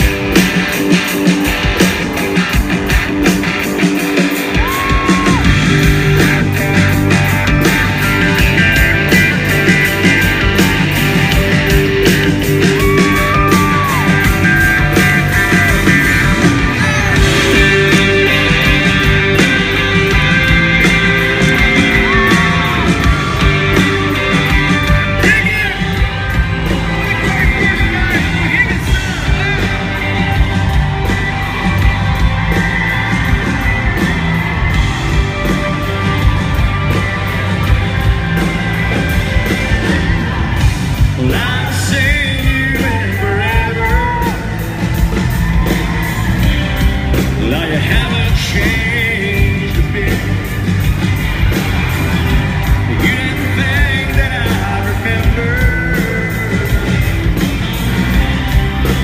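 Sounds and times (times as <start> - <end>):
crowd yelling: 0.0 - 59.0
live rock band playing: 0.0 - 59.0
person singing lead vocal: 12.5 - 30.9, 41.0 - 44.6, 47.3 - 50.6, 52.8 - 57.3.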